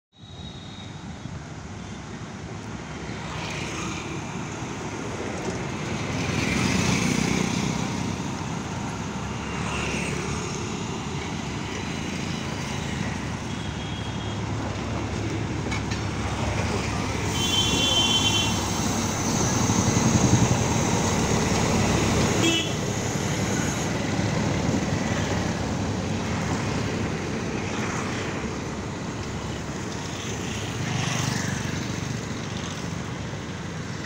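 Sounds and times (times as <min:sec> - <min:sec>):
road traffic: 0:00.2 - 0:34.0
diesel engine drone: 0:04.2 - 0:30.8.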